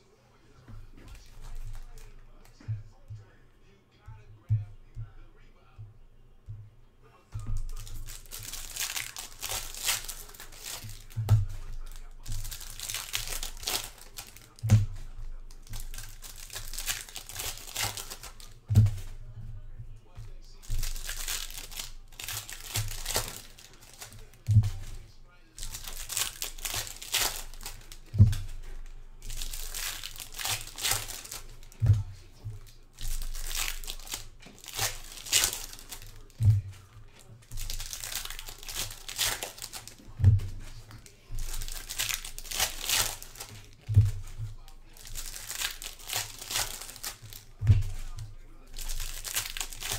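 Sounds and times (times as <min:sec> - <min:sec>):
dull thumps: 0:00.4 - 0:49.9
foil wrappers crinkling and tearing: 0:00.8 - 0:02.7, 0:07.4 - 0:49.9
dull thump: 0:10.6 - 0:12.6, 0:18.7 - 0:21.0, 0:26.8 - 0:29.5, 0:36.3 - 0:38.4, 0:39.6 - 0:41.8.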